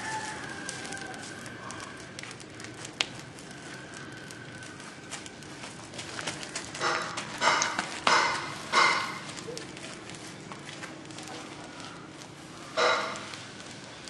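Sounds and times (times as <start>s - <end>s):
burning brush crackling: 0.0s - 14.0s
sharp pops: 6.3s - 9.6s, 12.7s - 13.7s.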